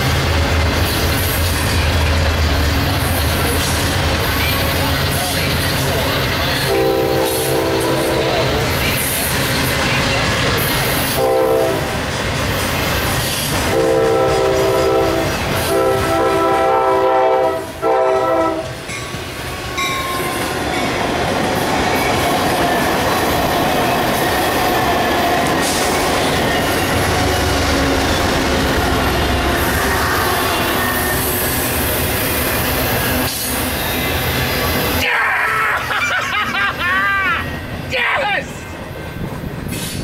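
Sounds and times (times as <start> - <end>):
passenger train rolling past: 0.0 - 40.0
passing trains rumbling: 0.0 - 40.0
locomotive air horn blasts: 6.7 - 8.5, 11.1 - 12.0, 13.7 - 18.7
locomotive engine rumble: 18.1 - 35.0.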